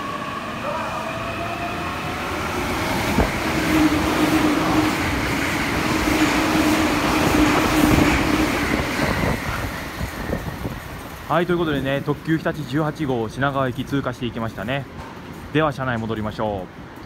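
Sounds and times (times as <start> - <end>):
train wheels rushing on rail: 0.0 - 17.0.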